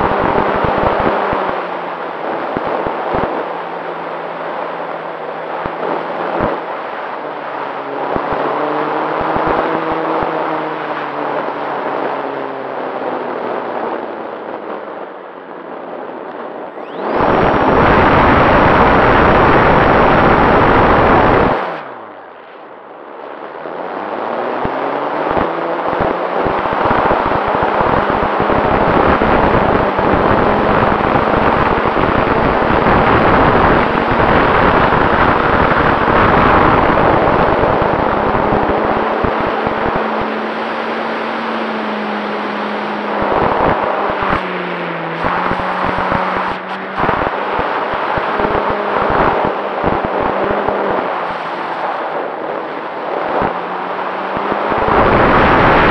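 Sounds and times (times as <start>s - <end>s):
wind buffeting microphone: 23.7s - 44.5s
loud rushing burst: 25.2s - 55.9s.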